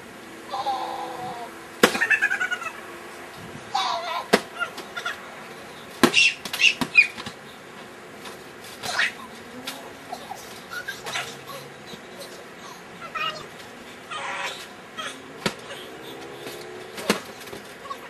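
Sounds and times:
boys shrieking and laughing: 0.5 - 3.0, 10.0 - 16.0
sharp smacks: 1.8 - 2.1, 6.0 - 7.4, 15.4 - 15.8, 16.4 - 17.7.

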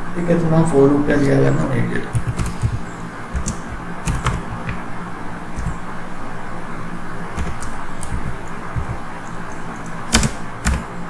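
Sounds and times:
keyboard keys clicking: 2.0 - 4.8, 5.6 - 5.8, 7.4 - 9.1, 9.8 - 10.9.

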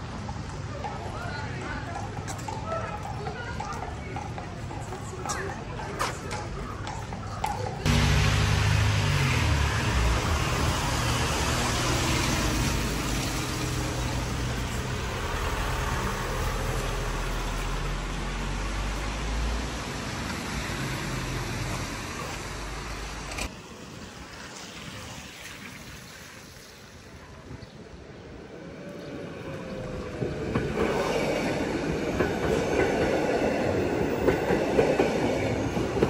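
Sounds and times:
low engine hum: 7.9 - 23.4
tyres hissing on wet pavement: 7.9 - 28.1.

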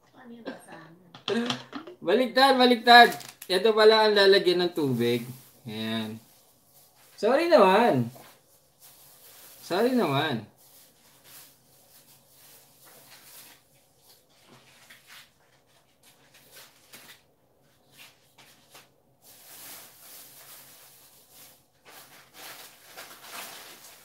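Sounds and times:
humidifier hiss: 0.1 - 24.0
plastic bottle handling knocks: 1.2 - 2.0.

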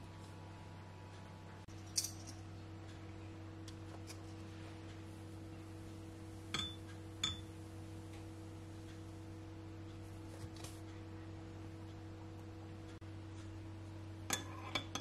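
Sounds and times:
low electrical hum: 0.0 - 15.0
spoon clinking against a dish: 6.6 - 7.5.

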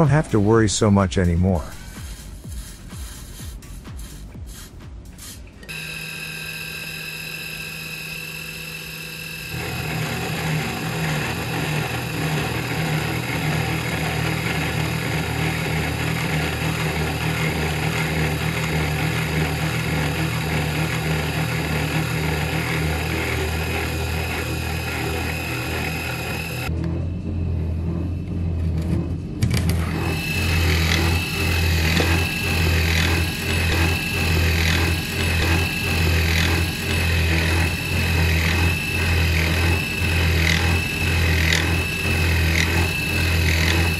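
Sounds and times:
spindle humming and whining: 5.4 - 43.9
rough milling of steel: 5.7 - 26.7, 29.7 - 43.9.

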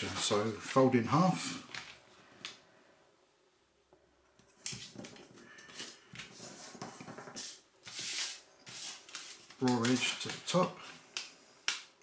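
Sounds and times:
paper rustling and sliding: 0.0 - 2.6, 4.6 - 11.0.

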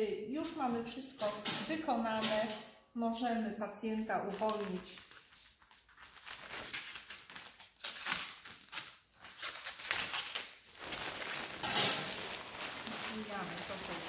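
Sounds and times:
paper drape crinkling and rustling: 4.0 - 14.0.

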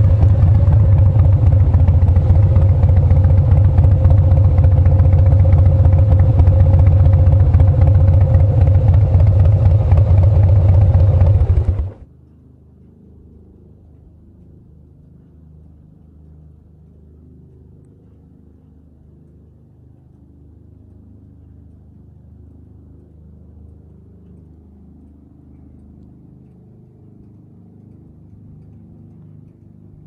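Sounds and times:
low engine rumble: 0.0 - 12.2.

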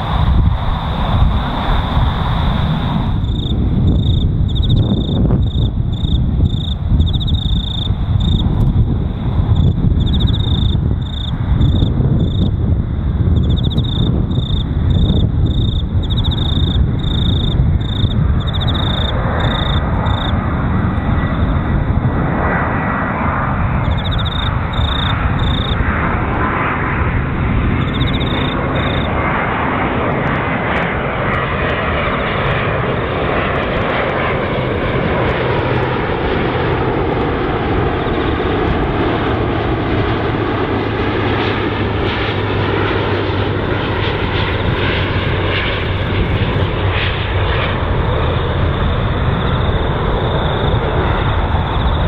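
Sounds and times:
airliner jet noise: 0.0 - 52.0
steady low rumble: 0.0 - 52.0
insects chirping trills: 3.0 - 12.6, 13.4 - 21.6, 23.8 - 26.1, 27.6 - 29.4, 31.7 - 39.2, 42.2 - 52.0.

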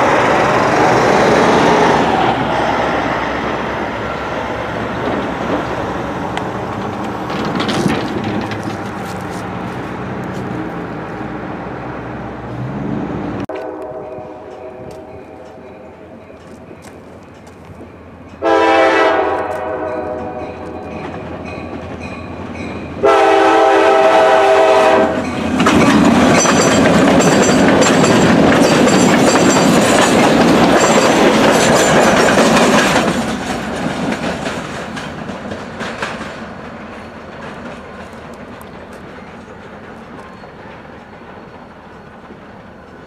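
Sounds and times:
locomotive engines running: 0.0 - 13.4, 14.2 - 18.4, 25.2 - 43.0
wheels clattering over rails: 4.7 - 9.4, 25.2 - 43.0
locomotive air horn: 13.5 - 15.2, 18.4 - 20.8, 23.0 - 25.2.

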